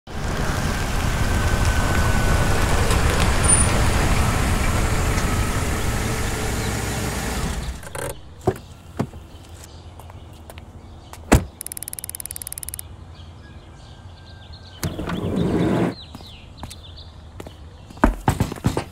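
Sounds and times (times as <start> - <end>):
van engine and tyres: 0.1 - 13.2, 14.7 - 18.9
sharp clicks: 11.4 - 12.9
rapid clicking: 11.5 - 12.8.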